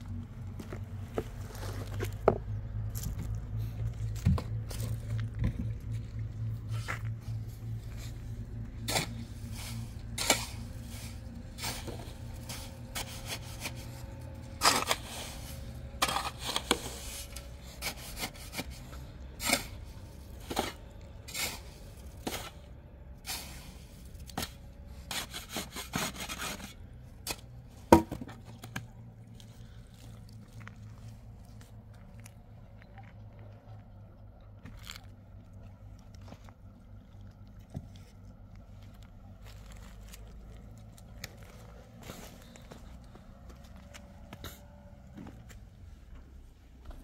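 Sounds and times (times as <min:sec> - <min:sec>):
shovel scraping sand: 0:08.8 - 0:27.4.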